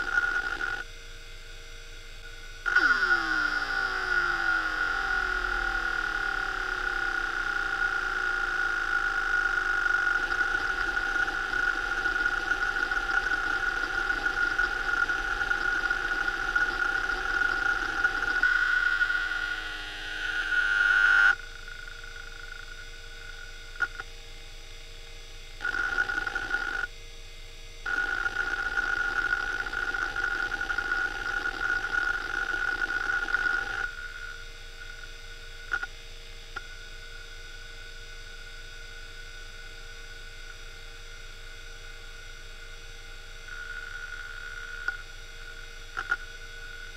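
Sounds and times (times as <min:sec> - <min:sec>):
hard drive seeking chatter: 0:00.0 - 0:01.0, 0:01.8 - 0:24.2, 0:25.5 - 0:27.0, 0:27.8 - 0:46.9
hard drive clicks: 0:02.2 - 0:19.1, 0:20.4 - 0:24.1, 0:27.9 - 0:35.9, 0:43.5 - 0:46.9
steady high tone: 0:02.6 - 0:21.4.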